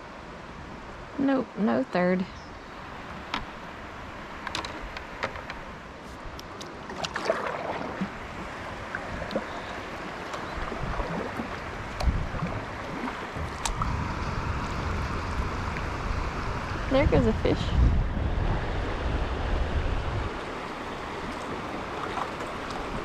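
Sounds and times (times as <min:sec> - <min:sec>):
river water rushing and lapping: 0:00.0 - 0:23.0
wind rumble on microphone: 0:02.0 - 0:23.0
sharp clicks and knocks: 0:04.4 - 0:05.6.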